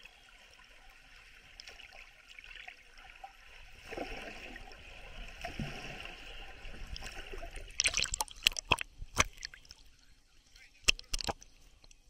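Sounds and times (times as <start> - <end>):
water rushing and gurgling underwater: 0.0 - 12.0
sharp splashes: 7.0 - 9.8.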